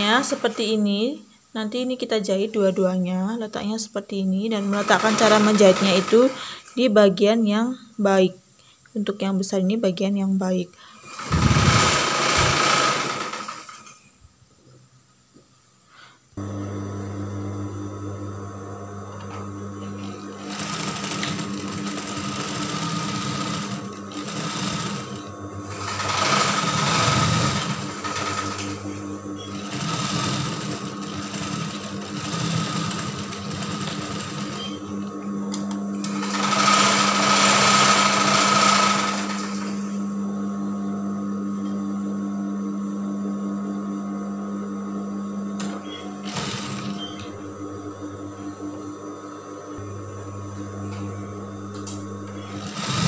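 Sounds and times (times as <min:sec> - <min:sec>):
sewing machine stitching: 0:04.5 - 0:06.8, 0:11.0 - 0:14.1, 0:20.0 - 0:28.8, 0:29.4 - 0:34.9, 0:36.0 - 0:39.8, 0:45.6 - 0:47.3, 0:52.4 - 0:53.0
motor hum: 0:10.9 - 0:14.1, 0:16.4 - 0:53.0.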